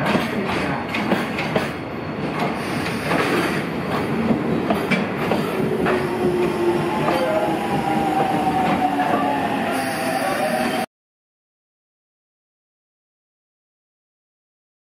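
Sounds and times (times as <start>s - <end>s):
freight train rumbling past: 0.0s - 10.9s.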